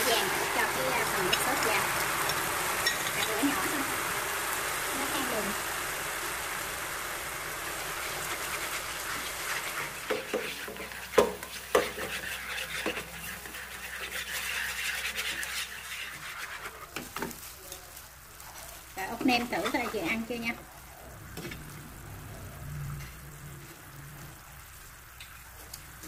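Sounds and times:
sauce bubbling and sizzling in pan: 0:00.0 - 0:26.0
utensils knocking against pan: 0:10.1 - 0:12.2.

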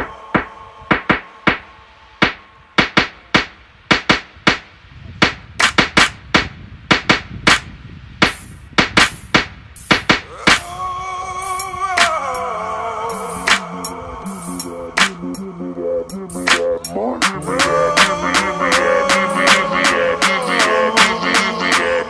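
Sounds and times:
dry percussion hits: 0:08.2 - 0:10.7
low bass rumble: 0:13.3 - 0:20.2.

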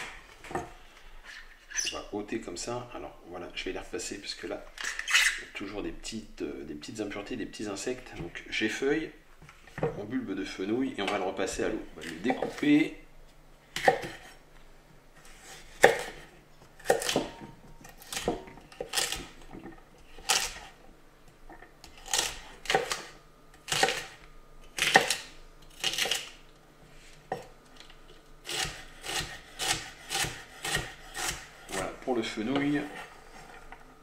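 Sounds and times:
knife chopping on wooden board: 0:13.8 - 0:14.3, 0:15.7 - 0:19.3, 0:23.7 - 0:24.2, 0:28.5 - 0:31.8.

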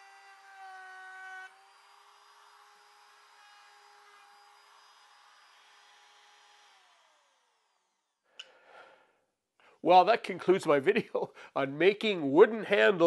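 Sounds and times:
router motor whining: 0:00.0 - 0:08.2.

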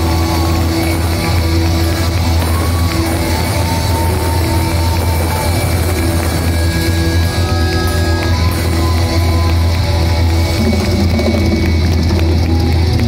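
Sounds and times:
heavy metal band playing: 0:00.0 - 0:13.0
high melodic guitar line: 0:00.0 - 0:13.0.

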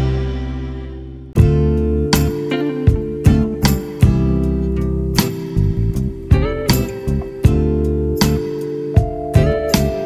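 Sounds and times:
guitar music: 0:00.0 - 0:10.0.

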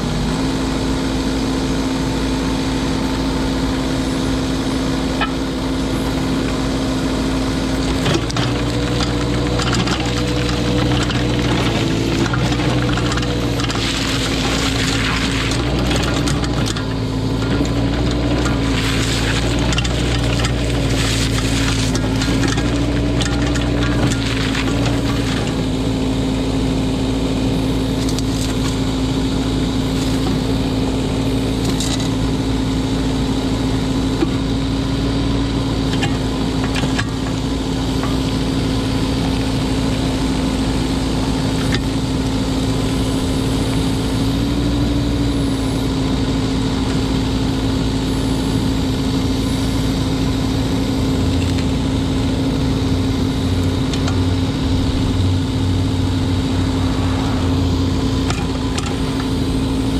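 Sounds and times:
mini excavator diesel engine running: 0:00.0 - 0:59.9.

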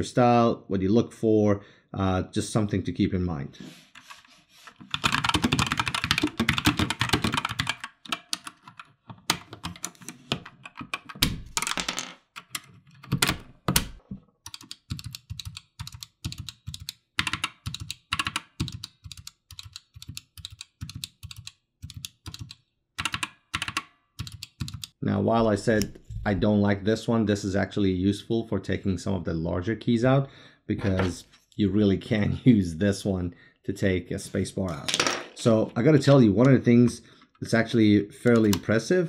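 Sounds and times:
mechanical keyboard typing: 0:04.8 - 0:11.8, 0:12.4 - 0:25.0.

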